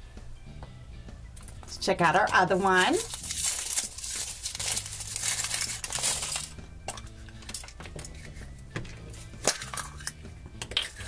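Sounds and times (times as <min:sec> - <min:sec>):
foil wrapper crinkling: 0:02.5 - 0:08.4.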